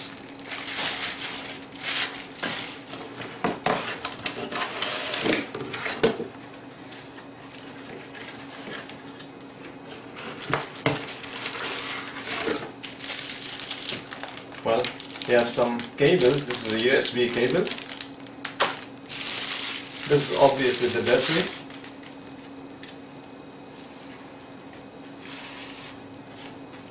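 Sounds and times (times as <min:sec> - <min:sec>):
crinkling plastic and bubble wrap: 0:00.0 - 0:03.1, 0:10.3 - 0:22.5.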